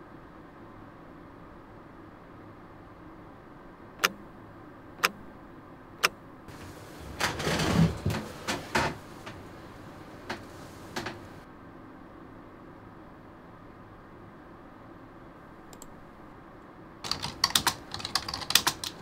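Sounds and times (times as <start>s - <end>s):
rustling movement: 6.5s - 11.4s
computer mouse clicks: 15.7s - 16.0s, 17.0s - 19.0s.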